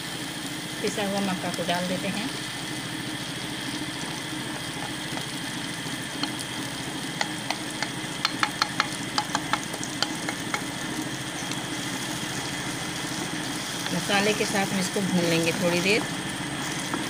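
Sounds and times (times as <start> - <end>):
food frying in oil: 0.0 - 17.0
low hum: 0.0 - 17.0
spatula clicking and scraping a pan: 7.2 - 10.8.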